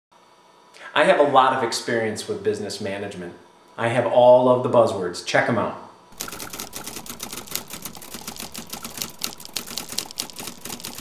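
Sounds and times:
typewriter keys clacking: 0:06.2 - 0:11.0.

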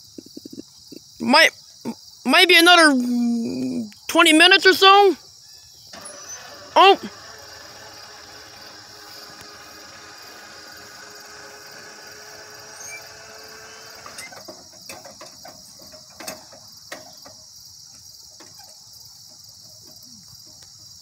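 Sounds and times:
crickets trilling: 0:00.0 - 0:21.0
crossing gate mechanism running: 0:05.9 - 0:17.5
sharp clicks and knocks: 0:14.0 - 0:17.4.

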